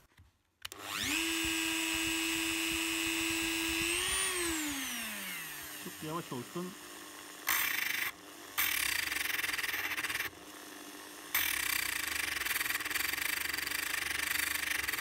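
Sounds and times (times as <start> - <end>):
rotary tool motor hum: 0.6 - 15.0.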